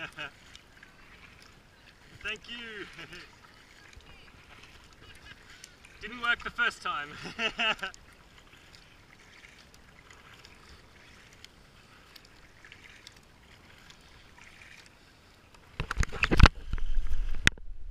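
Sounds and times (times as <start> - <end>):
paddle swishing in water: 0.0 - 17.6.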